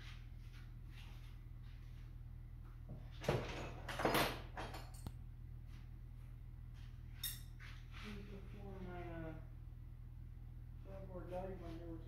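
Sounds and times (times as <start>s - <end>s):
steady low hum: 0.0s - 12.0s
tools clattering on workbench: 3.2s - 5.1s.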